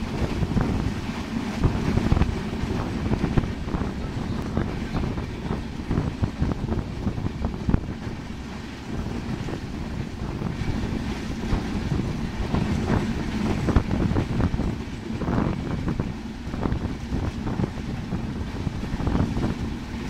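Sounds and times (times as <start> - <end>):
train rumbling: 0.0 - 20.0
wheels clacking on rails: 0.0 - 20.0
wind buffeting microphone: 0.0 - 20.0.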